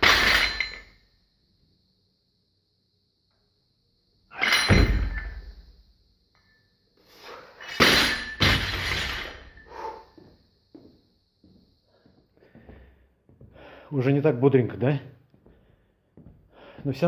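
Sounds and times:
barbell clank and thud: 0:00.0 - 0:00.9, 0:04.4 - 0:05.5, 0:07.6 - 0:09.6
barbell dropped on floor: 0:00.0 - 0:00.9, 0:04.3 - 0:05.6, 0:07.6 - 0:09.6.

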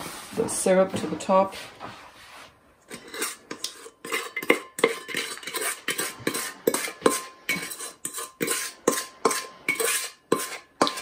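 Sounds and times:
spatula scraping metal saucepan: 0:02.9 - 0:11.0.

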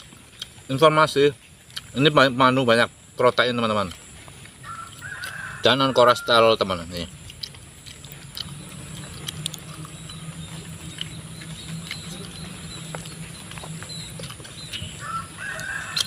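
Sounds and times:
low hum: 0:06.8 - 0:16.0
mouth clicks and smacks: 0:07.1 - 0:16.0.

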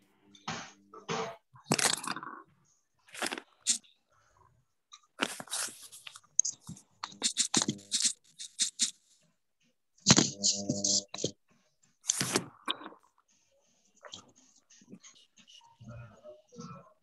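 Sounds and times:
crunching rustling noise: 0:05.2 - 0:08.9.

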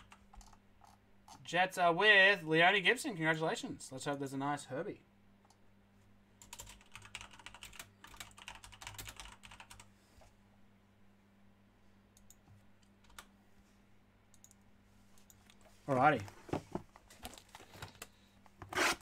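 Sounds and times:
typing on computer keyboard: 0:00.0 - 0:01.4, 0:06.4 - 0:09.9, 0:13.0 - 0:13.3.

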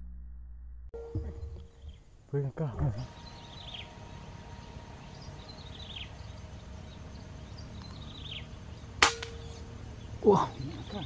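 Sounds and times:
brief ringing tone: 0:01.0 - 0:02.0
bird chirping: 0:01.0 - 0:11.0
air rifle shot: 0:09.0 - 0:09.4.

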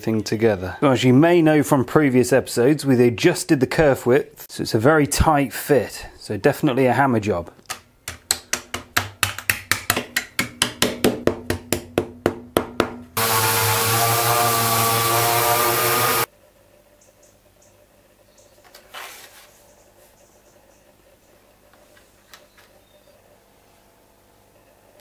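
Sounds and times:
hammer knocking on plywood: 0:08.1 - 0:13.1
orbital sander on wood: 0:13.2 - 0:16.3.

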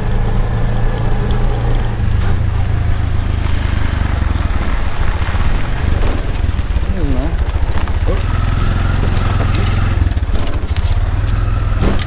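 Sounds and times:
auto-rickshaw engine running: 0:00.0 - 0:12.0
road rumble: 0:00.0 - 0:12.0
rushing wind: 0:00.0 - 0:12.0.

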